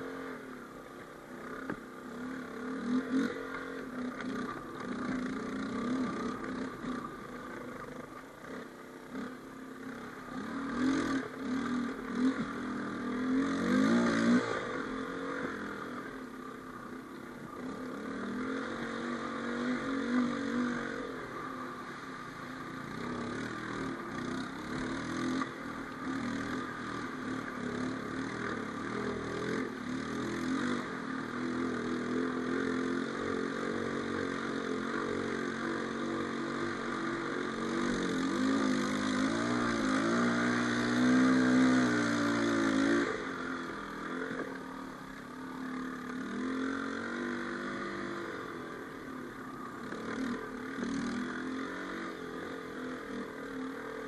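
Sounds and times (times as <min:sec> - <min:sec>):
quad engine revving: 0:10.3 - 0:16.0, 0:17.6 - 0:44.9, 0:45.6 - 0:54.0.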